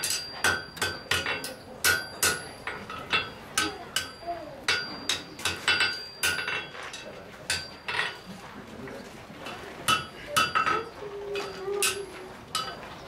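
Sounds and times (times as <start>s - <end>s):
hammer striking steel on anvil: 0.0s - 8.2s, 9.9s - 10.8s.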